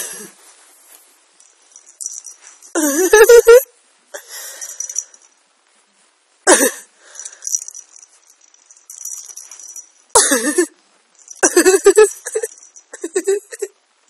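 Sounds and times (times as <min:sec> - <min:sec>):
person laughing: 0:02.8 - 0:03.7, 0:11.4 - 0:13.7.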